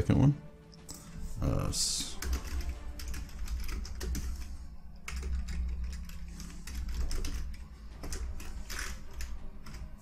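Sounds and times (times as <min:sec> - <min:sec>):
keyboard typing: 0:02.0 - 0:10.0.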